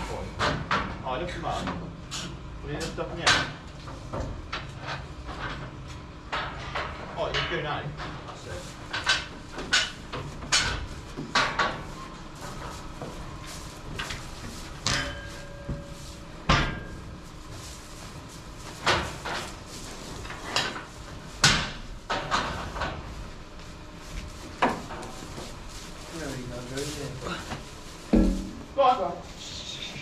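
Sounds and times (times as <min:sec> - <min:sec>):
steady background hum: 0:00.0 - 0:30.0
sharp knocks and bangs: 0:28.0 - 0:28.7.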